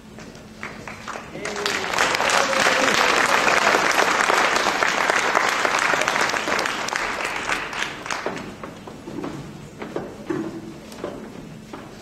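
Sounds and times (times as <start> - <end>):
audience applauding: 0.6 - 8.6.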